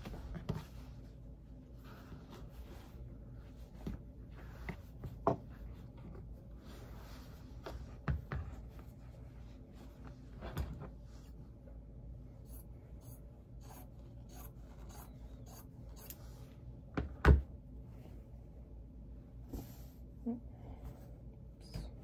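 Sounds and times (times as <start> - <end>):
fabric rustling on cutting mat: 0.0 - 11.8.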